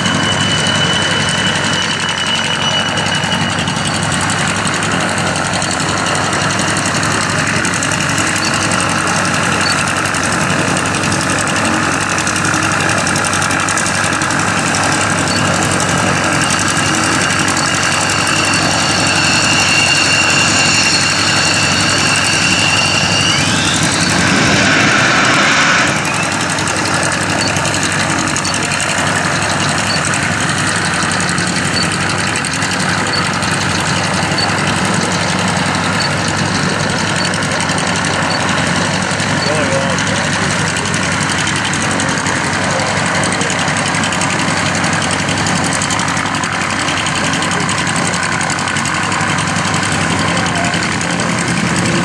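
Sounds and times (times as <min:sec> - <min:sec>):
loud jet rush: 0:00.0 - 0:39.4
high turbine whine: 0:00.0 - 0:52.0
jet engine running: 0:00.0 - 0:52.0.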